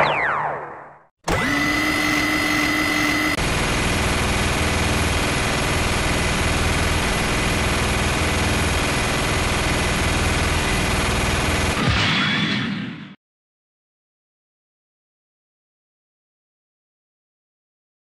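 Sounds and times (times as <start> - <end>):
rotary barrels whining: 1.2 - 11.8
rapid gunfire: 3.4 - 12.4.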